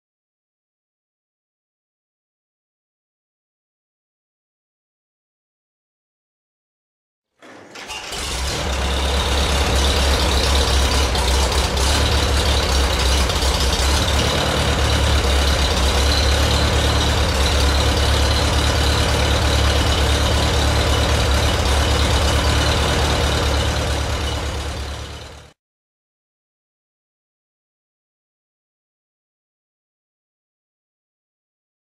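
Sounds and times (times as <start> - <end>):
tractor engine running: 7.4 - 25.6.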